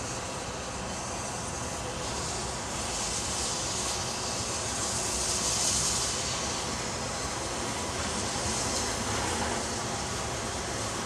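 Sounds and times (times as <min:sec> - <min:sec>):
distant steam train rushing hiss: 0:00.0 - 0:11.0.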